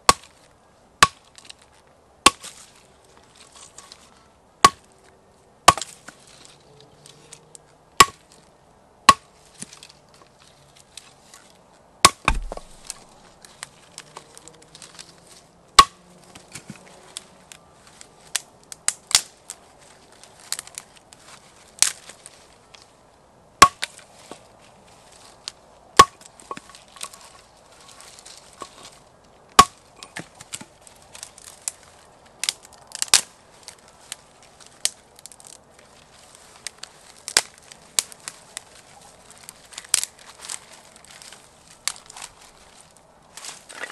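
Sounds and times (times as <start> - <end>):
sticks cracking and rustling: 0.1 - 43.9
hatchet chopping wood: 4.6 - 4.9, 5.7 - 6.0, 8.0 - 8.2, 9.1 - 9.3, 12.0 - 13.0, 23.6 - 23.9, 26.0 - 26.6, 29.6 - 29.8.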